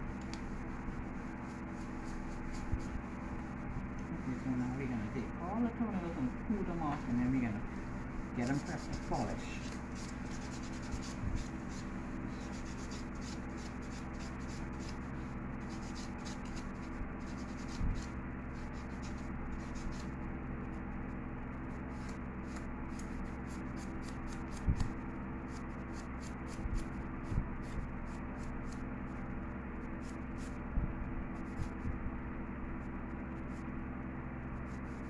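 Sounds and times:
nail file scratching toenails: 8.4s - 15.0s, 15.7s - 20.1s.

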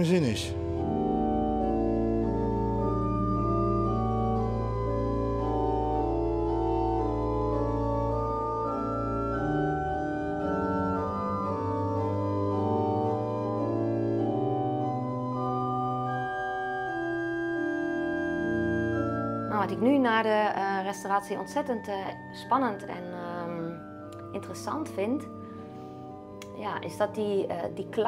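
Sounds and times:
pipe organ playing: 0.0s - 20.2s.

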